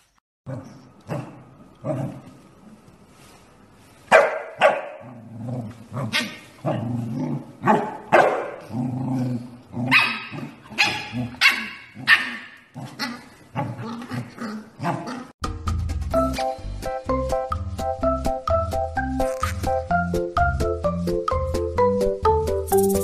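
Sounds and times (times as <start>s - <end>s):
puppy growling: 5.0s - 7.8s, 8.6s - 15.4s
puppy yapping: 9.9s - 12.6s.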